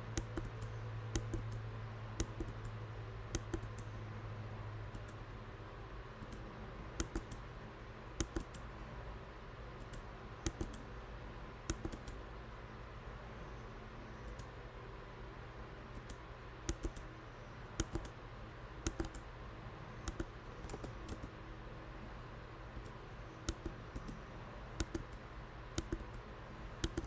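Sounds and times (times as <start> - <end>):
steady low hum: 0.0 - 27.0
computer keyboard keys pressed: 0.2 - 0.6, 1.2 - 1.6, 2.2 - 2.8, 3.4 - 3.9, 7.0 - 7.4, 8.2 - 8.6, 9.8 - 10.8, 11.7 - 12.2, 16.0 - 17.0, 17.8 - 18.2, 18.9 - 19.2, 20.0 - 21.3, 24.8 - 25.2, 25.8 - 26.2, 26.8 - 27.0.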